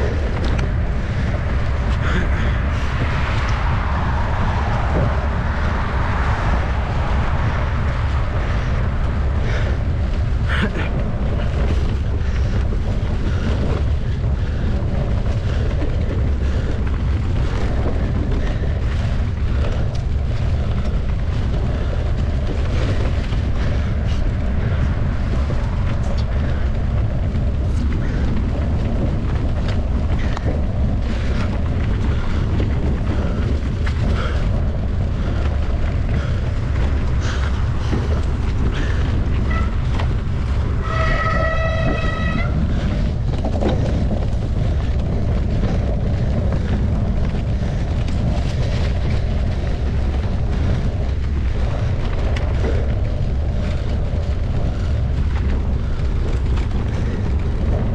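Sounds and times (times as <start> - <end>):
bike clicks and rattles: 0.0 - 57.9
wind buffeting microphone: 0.0 - 57.9.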